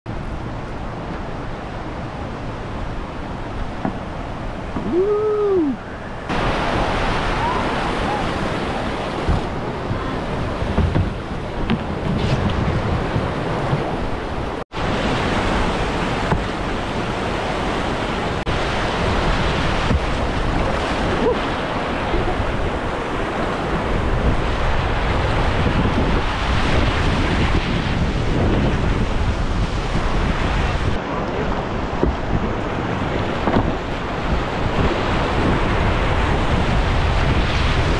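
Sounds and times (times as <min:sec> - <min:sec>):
river rapids rushing: 0:00.1 - 0:12.3, 0:13.0 - 0:27.3
wind buffeting microphone: 0:00.1 - 0:37.9.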